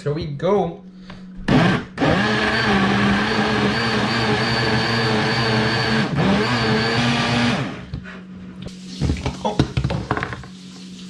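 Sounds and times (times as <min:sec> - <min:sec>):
blender motor whine: 0:01.4 - 0:07.9.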